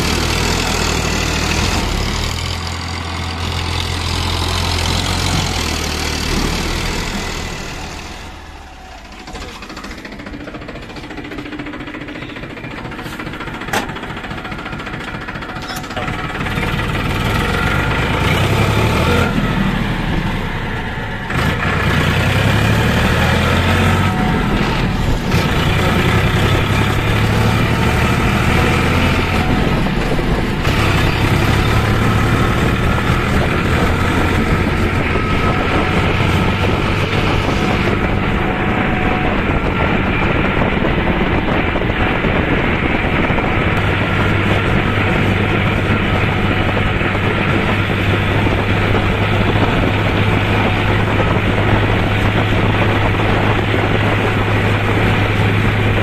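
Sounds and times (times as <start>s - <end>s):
tractor diesel engine running: 0.0s - 56.0s.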